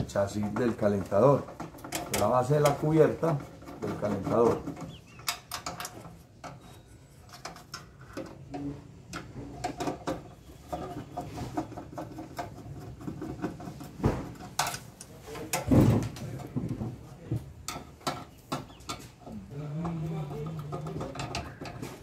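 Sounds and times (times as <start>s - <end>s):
loud thumps: 15.6s - 17.0s.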